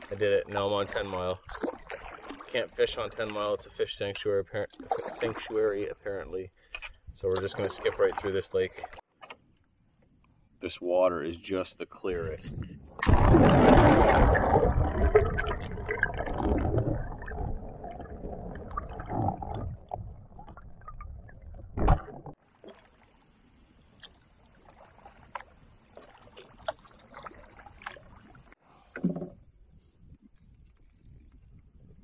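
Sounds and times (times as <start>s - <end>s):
water rushing and gurgling underwater: 12.6s - 29.2s.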